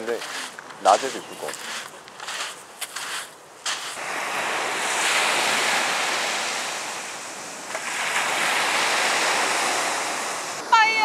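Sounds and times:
footsteps crunching in sand: 0.0s - 4.1s
sea waves breaking on beach: 0.0s - 11.0s.

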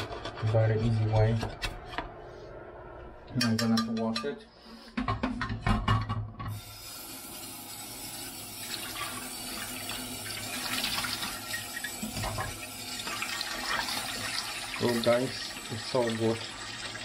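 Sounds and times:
pan clanking on steel sink: 3.4s - 4.3s, 11.2s - 14.0s.

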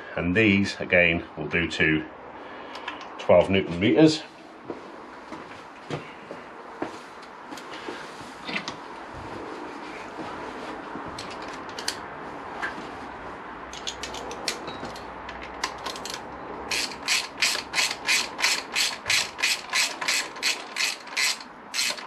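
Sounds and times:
socket ratchet clicking: 13.7s - 22.0s.

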